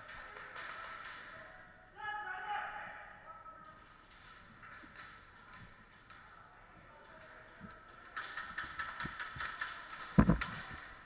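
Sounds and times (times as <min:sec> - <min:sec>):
rapid patter of clicks and taps: 0:00.0 - 0:01.4, 0:03.7 - 0:11.0.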